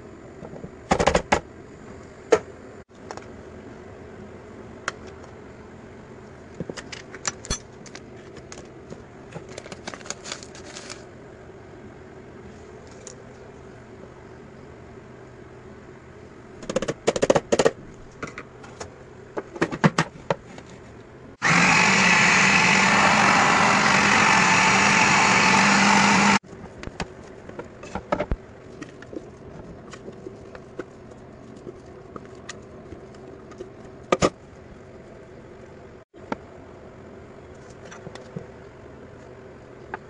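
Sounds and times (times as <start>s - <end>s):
food processor motor running: 21.4s - 26.4s.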